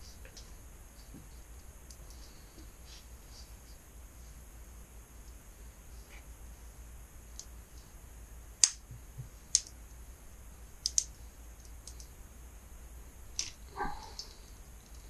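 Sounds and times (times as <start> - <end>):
steady low hum: 0.0 - 15.0
sharp light clicks: 8.6 - 8.8, 9.5 - 9.8, 10.8 - 12.1, 13.3 - 15.0.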